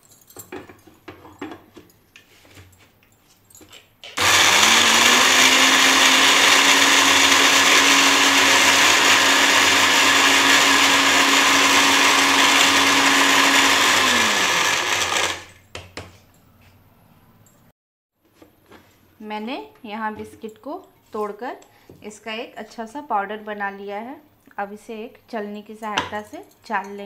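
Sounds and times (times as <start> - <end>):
mixer grinder motor running: 4.2 - 15.6.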